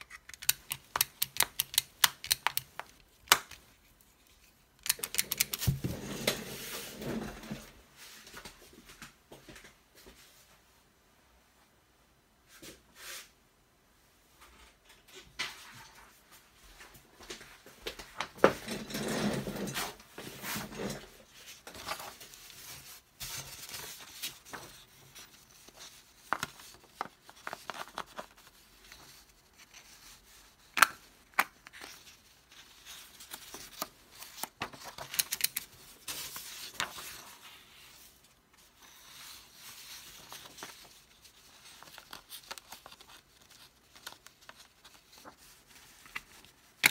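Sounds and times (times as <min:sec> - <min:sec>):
paper sheets rustling: 0:31.7 - 0:46.9.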